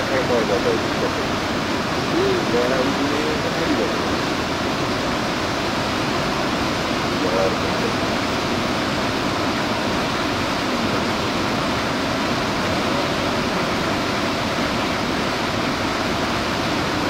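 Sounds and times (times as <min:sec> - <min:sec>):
waterfall rushing over boulders: 0:00.0 - 0:17.0.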